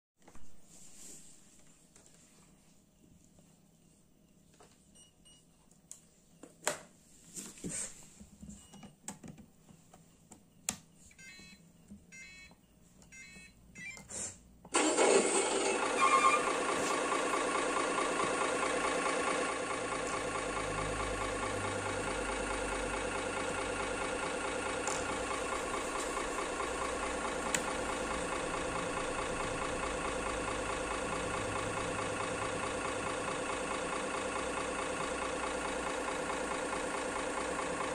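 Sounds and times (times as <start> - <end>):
simulated truck engine idling: 14.7 - 37.9.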